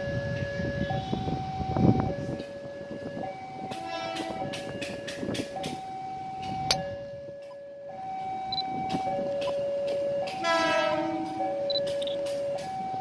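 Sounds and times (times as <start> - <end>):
horn sounding: 3.7 - 4.5, 10.3 - 11.7
level crossing alarm two-tone: 5.5 - 13.0.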